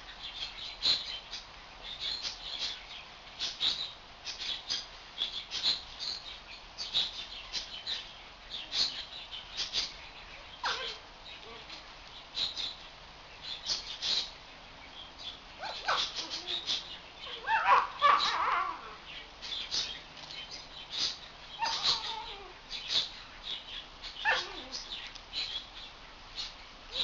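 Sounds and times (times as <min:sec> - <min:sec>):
puppy yipping and growling: 0:17.3 - 0:19.0, 0:21.6 - 0:22.6, 0:24.2 - 0:24.8.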